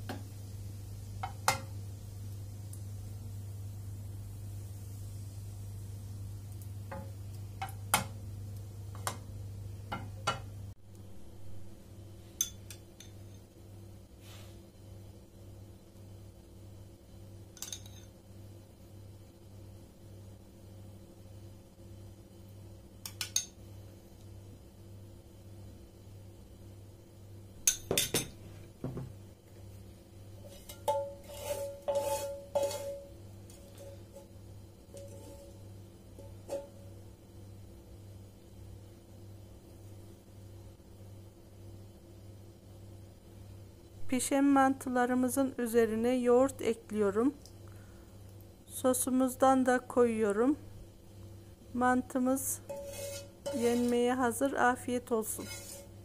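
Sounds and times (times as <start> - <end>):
steady low hum: 0.0 - 56.0
metal spoon clinking on plate: 17.6 - 18.1.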